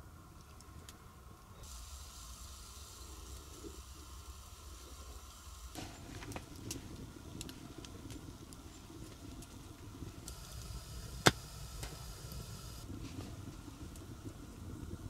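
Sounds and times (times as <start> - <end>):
campfire crackling: 0.0 - 15.0
loud fire crack: 1.6 - 15.0.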